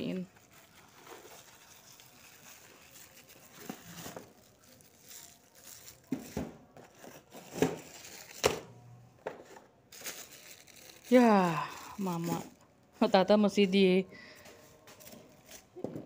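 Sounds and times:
packaging crinkling and rustling: 0.0 - 8.7, 9.4 - 13.7, 14.6 - 15.9.

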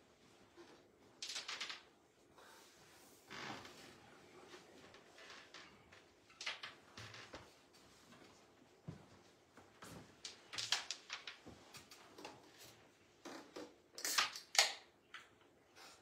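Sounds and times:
wooden carrom pieces clicking: 10.3 - 12.4.

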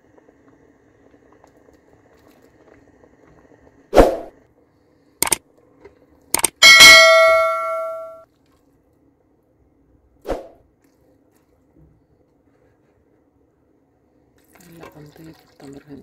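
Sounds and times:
mouse clicks: 6.4 - 6.6
bright bell ding: 6.6 - 8.2.

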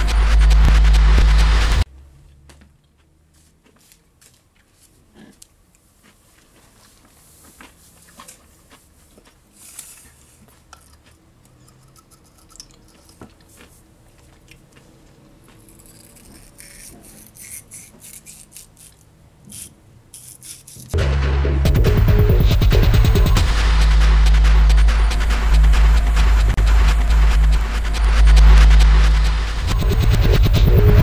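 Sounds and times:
loud music: 0.0 - 1.9, 21.0 - 31.0.

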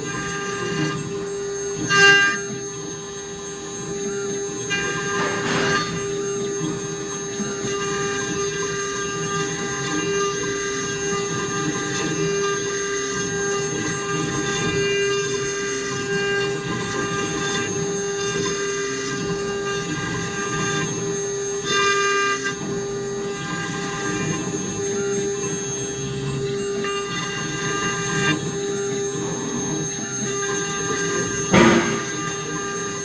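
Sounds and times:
router spindle whine: 0.0 - 33.0
end mill cutting wood: 9.2 - 33.0.

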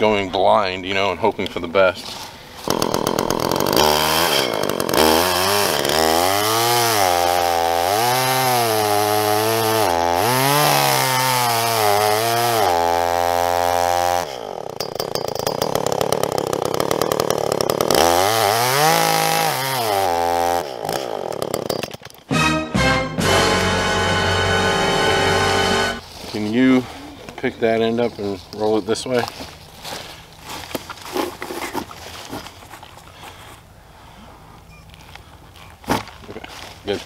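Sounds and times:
chainsaw cutting log: 2.6 - 22.5, 23.2 - 26.0.

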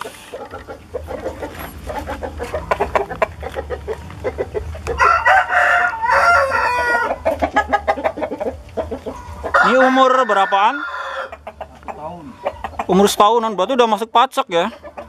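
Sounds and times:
rooster crowing: 4.9 - 7.7, 9.0 - 11.5.

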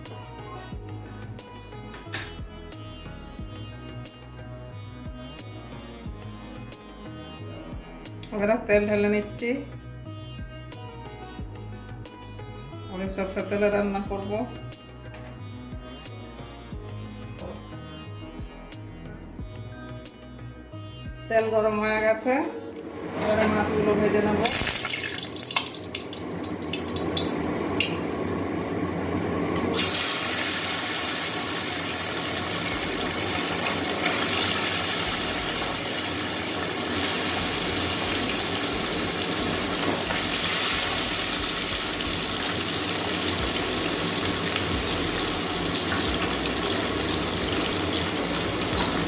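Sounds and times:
fish sizzling in hot oil: 24.4 - 27.4, 29.7 - 49.0
hot oil popping: 24.5 - 28.1, 29.6 - 49.0.

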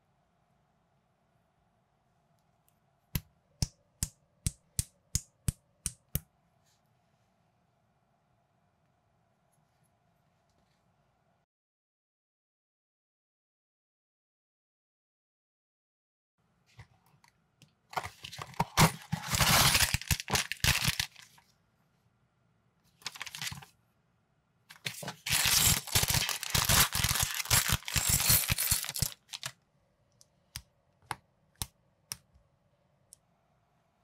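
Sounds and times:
packaging tearing and crinkling: 18.5 - 21.4, 23.0 - 23.7, 24.8 - 29.5.

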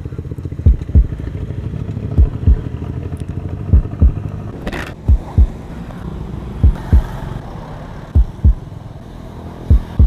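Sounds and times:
motorcycle engine running: 0.0 - 5.7, 6.6 - 7.3, 8.2 - 8.8, 9.6 - 10.0
heartbeat sound effect: 0.6 - 1.2, 2.1 - 2.7, 3.7 - 4.2, 5.1 - 5.6, 6.6 - 7.2, 8.2 - 8.7, 9.7 - 10.0.

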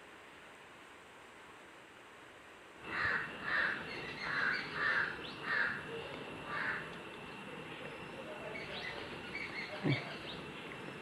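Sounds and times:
outdoor background noise: 0.0 - 11.0
crow cawing: 2.9 - 6.9.

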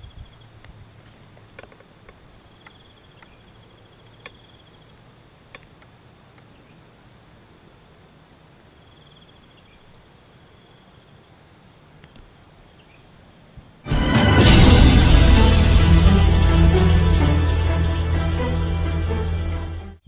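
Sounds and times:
faint insect trill: 0.0 - 13.9
insects chirring: 0.0 - 13.9.

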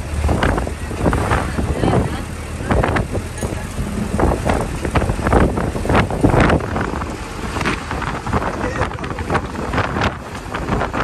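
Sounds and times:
steady low rumble: 0.0 - 9.4
wind buffeting microphone: 0.0 - 11.0.

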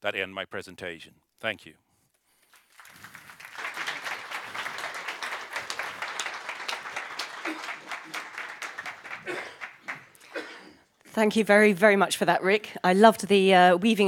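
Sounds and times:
audience applauding: 2.4 - 10.2.

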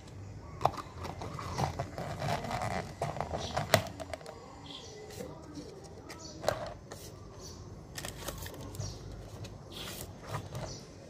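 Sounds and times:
plastic crinkling and creaking: 0.6 - 4.5, 7.9 - 10.9.

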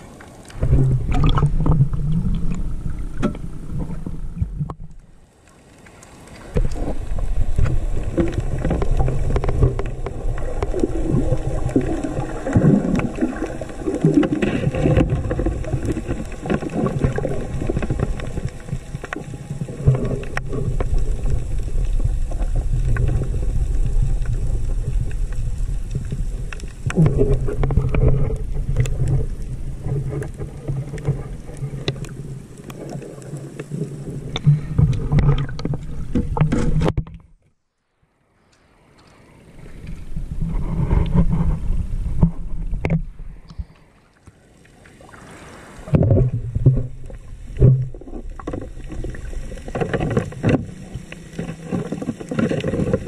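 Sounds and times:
underwater low rumble: 0.0 - 37.6, 38.2 - 53.0
bubbling underwater: 0.5 - 4.9, 6.6 - 36.8.

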